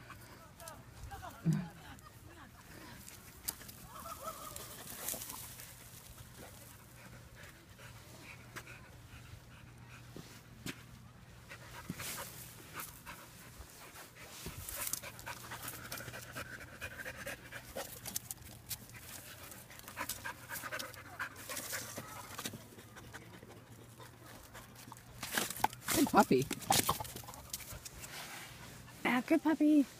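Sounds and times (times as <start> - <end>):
puppy panting and sniffing: 4.7 - 29.5.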